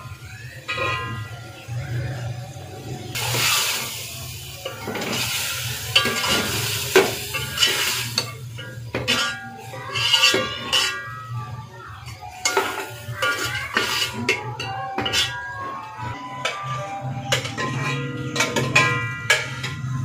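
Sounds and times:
curry sizzling: 0:00.0 - 0:15.5
ladle scraping a metal pot: 0:08.9 - 0:11.1, 0:12.5 - 0:14.4.

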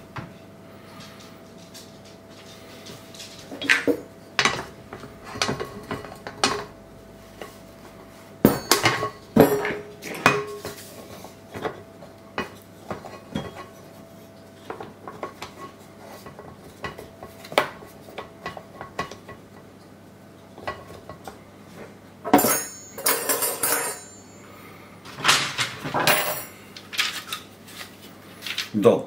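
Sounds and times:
glass bowl clattering and scraping: 0:22.3 - 0:24.4.

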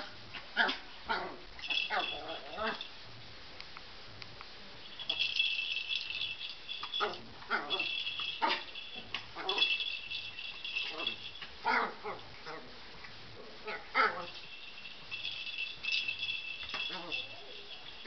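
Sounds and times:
toy ball rattling: 0:01.6 - 0:02.9, 0:04.9 - 0:11.6, 0:14.1 - 0:18.0.

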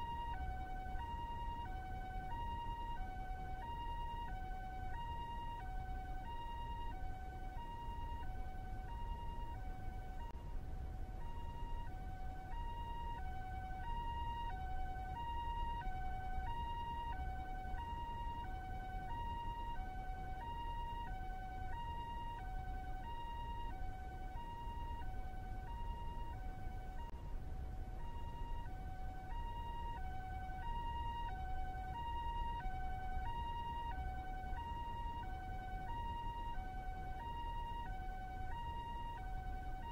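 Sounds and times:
two-tone ambulance siren: 0:00.0 - 0:39.9
steady low rumble: 0:05.2 - 0:39.9.

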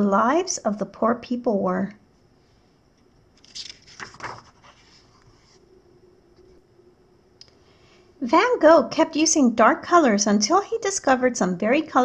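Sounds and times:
book page turning: 0:03.0 - 0:05.6.

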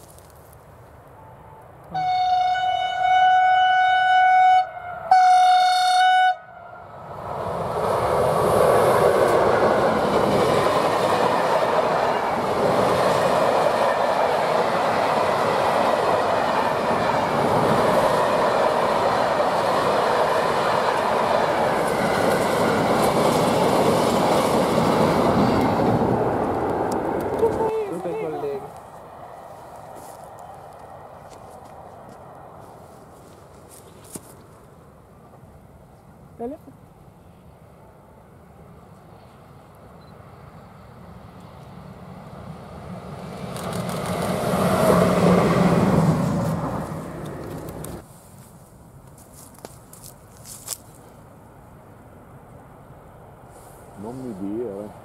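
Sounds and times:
locomotive horn blasts: 0:01.2 - 0:06.8
train wheels rumbling and rattling: 0:07.6 - 0:28.3, 0:42.9 - 0:48.0.

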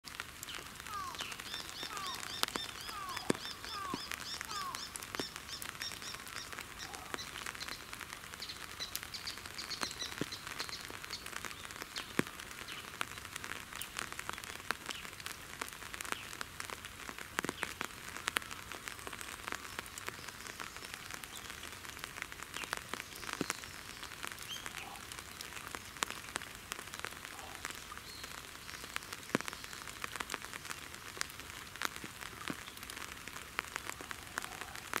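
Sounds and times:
light rain pattering and dripping: 0:00.0 - 0:35.0
bird calling high repeated notes: 0:00.9 - 0:07.7.

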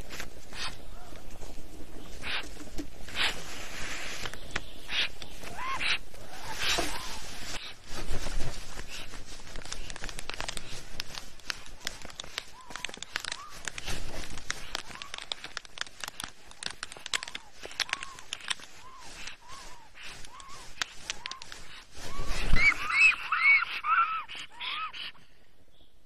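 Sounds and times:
crackling and clicking on nest: 0:00.0 - 0:25.1
faint short bird calls: 0:04.3 - 0:07.7, 0:17.2 - 0:25.9.

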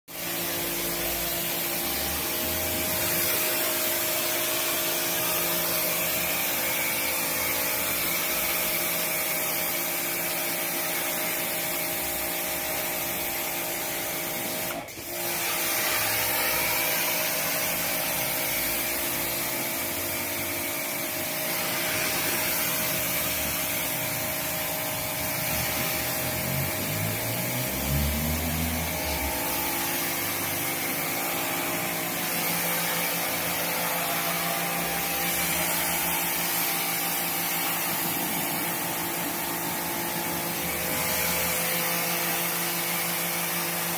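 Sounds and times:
pressure washer motor running: 0:00.1 - 0:43.9
water jet hissing on floor: 0:00.1 - 0:43.9
short rising tone: 0:25.4 - 0:32.0.

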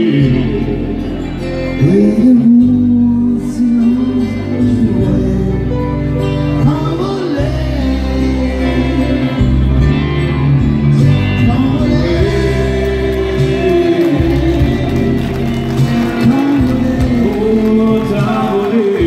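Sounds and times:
country band playing: 0:00.0 - 0:19.0
man singing through microphone: 0:00.0 - 0:19.0.

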